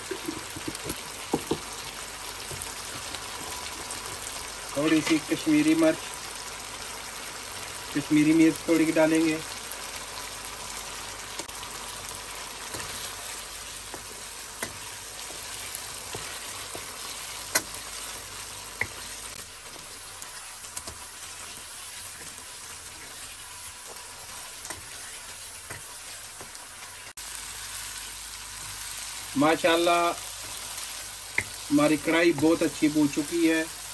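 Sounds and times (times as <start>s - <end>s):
wooden spoon knocking pan: 0.0s - 1.8s
food sizzling in a pan: 0.0s - 33.9s.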